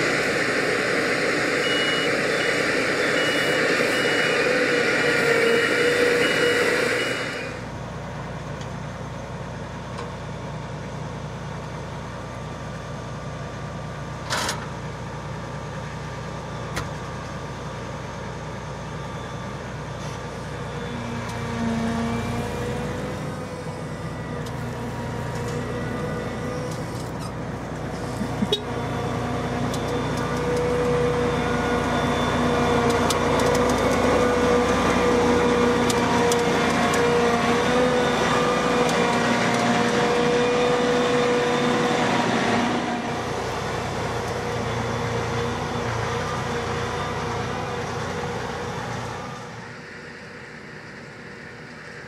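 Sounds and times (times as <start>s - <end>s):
combine harvester diesel engine: 0.0s - 52.0s
steady whine: 0.0s - 52.0s.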